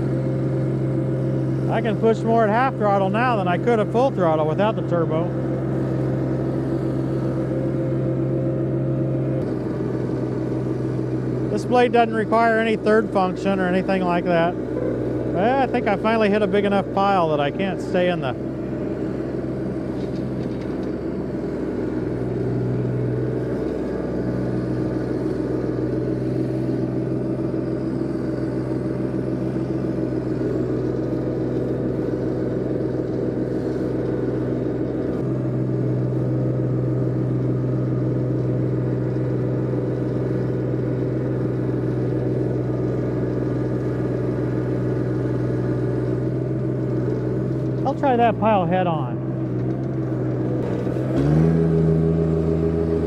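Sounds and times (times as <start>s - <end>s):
diesel tractor engine under load: 0.0s - 53.0s.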